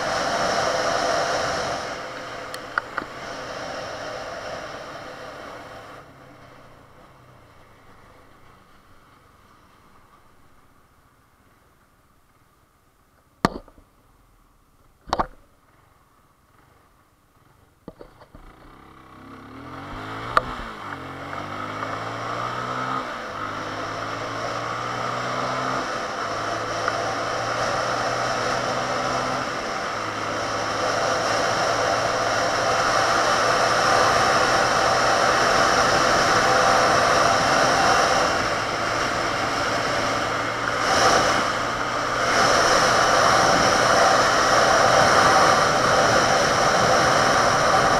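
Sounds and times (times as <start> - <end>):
rush of wind: 0.0 - 7.0, 19.6 - 47.9
motorcycle engine revving: 0.0 - 8.8, 18.2 - 47.9.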